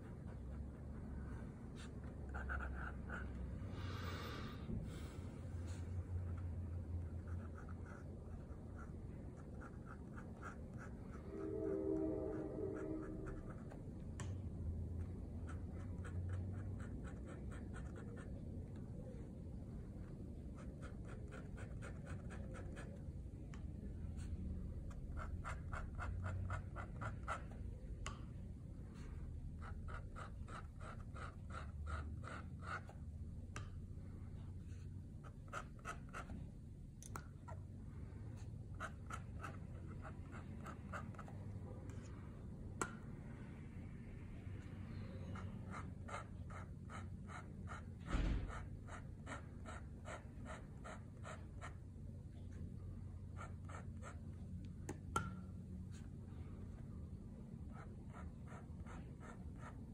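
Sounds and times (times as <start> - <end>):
pen nib scratching paper: 0.0 - 3.4, 6.2 - 11.7, 12.7 - 14.3, 15.0 - 18.4, 20.4 - 23.1, 24.1 - 27.6, 28.9 - 33.0, 34.7 - 36.5, 38.4 - 42.2, 45.1 - 51.8, 53.2 - 54.4, 57.7 - 59.9.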